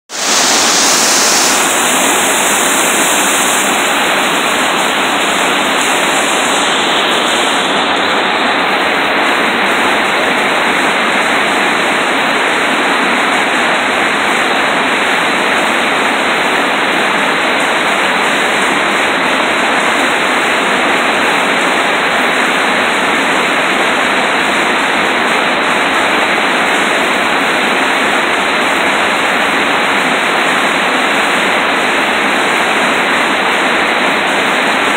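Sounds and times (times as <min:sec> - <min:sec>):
river rapids rushing: 0:00.1 - 0:34.9.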